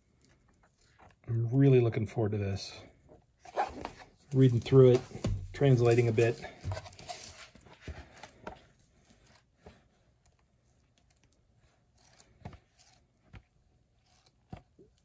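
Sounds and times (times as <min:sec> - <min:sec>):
book pages rustling: 0:03.4 - 0:15.0.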